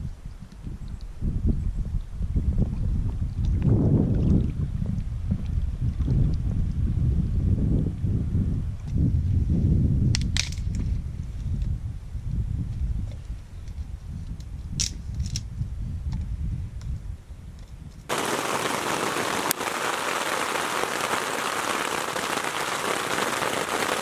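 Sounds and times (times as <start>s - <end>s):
heavy rain drumming on a tent: 18.1s - 24.0s.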